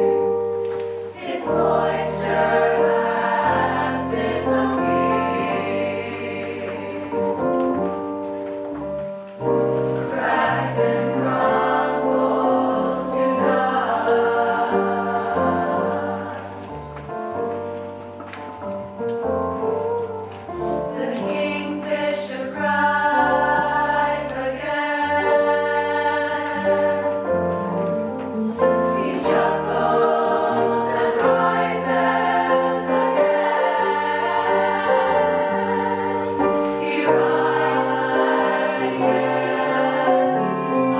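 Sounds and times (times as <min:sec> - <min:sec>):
choir singing: 0:01.0 - 0:07.6, 0:10.0 - 0:17.1, 0:20.6 - 0:27.4, 0:28.7 - 0:40.9.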